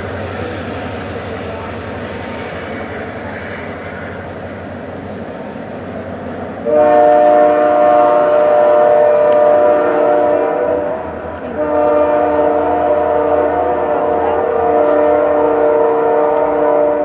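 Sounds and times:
locomotive air horn blasts: 0:06.6 - 0:17.0.

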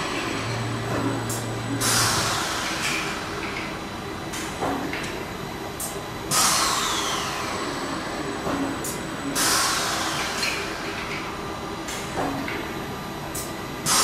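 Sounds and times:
steady machine hum: 0:00.0 - 0:14.0.

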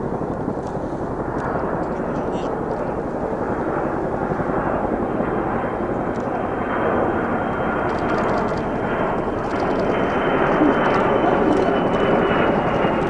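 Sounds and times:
distant aircraft engines rumbling: 0:00.0 - 0:13.0
faint murmur of spectators: 0:10.4 - 0:12.7.

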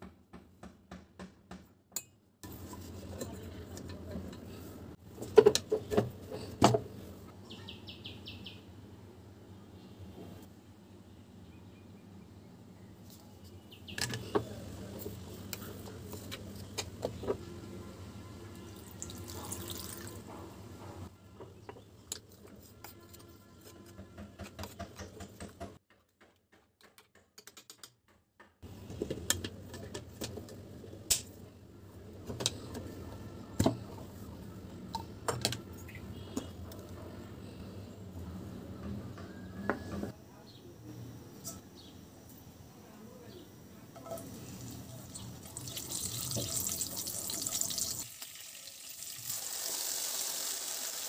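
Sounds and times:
water pouring into metal jar: 0:18.8 - 0:20.2, 0:45.1 - 0:50.9.

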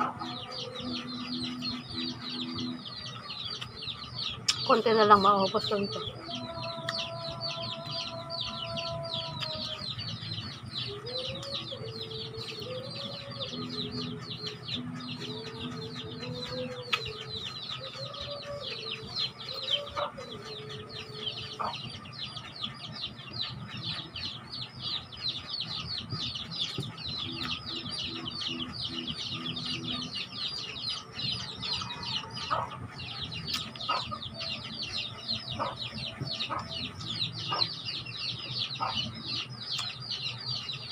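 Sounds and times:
chickens clucking: 0:00.0 - 0:40.9
chickens peeping: 0:00.0 - 0:40.9.

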